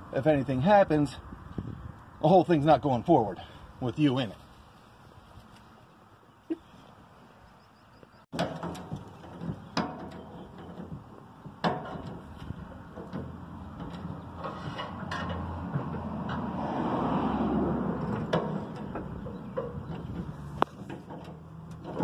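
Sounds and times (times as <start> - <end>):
sharp knocks and clunks: 8.3 - 16.7, 17.6 - 22.0.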